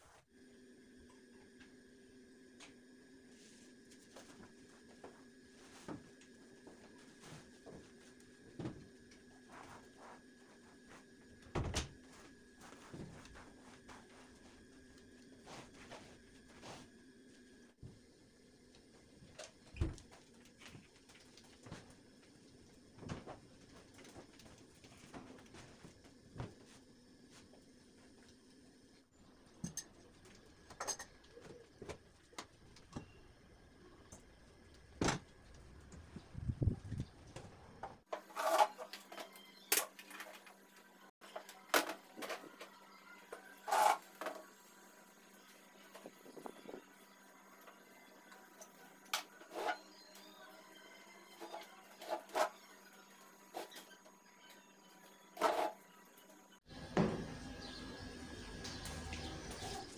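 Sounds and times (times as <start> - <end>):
floor mop and rug handled: 3.3 - 16.9.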